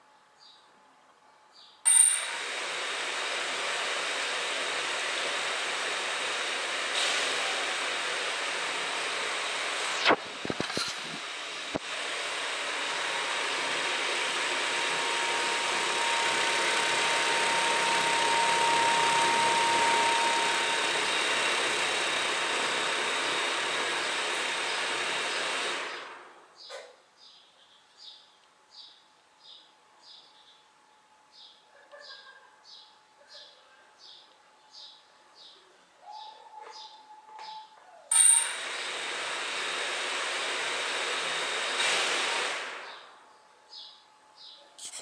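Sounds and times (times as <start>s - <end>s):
drone propellers whirring: 1.9s - 26.2s.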